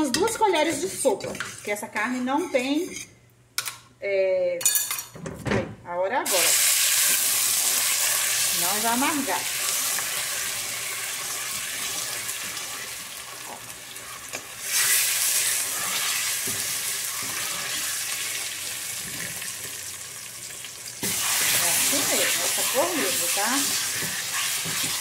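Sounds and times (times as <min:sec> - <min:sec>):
meat sizzling in a pan: 0:06.3 - 0:25.0.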